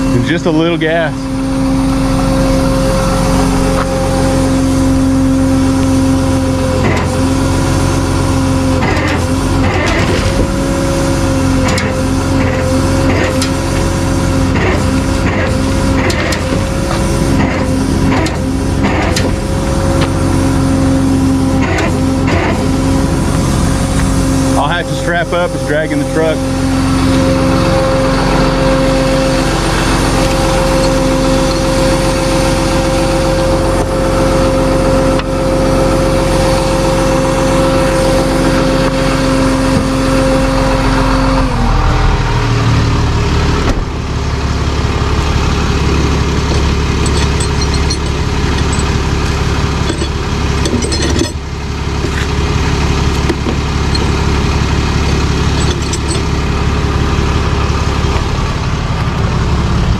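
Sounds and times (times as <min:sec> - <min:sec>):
high whine: 0:00.0 - 0:59.9
truck engine running: 0:00.0 - 0:59.9.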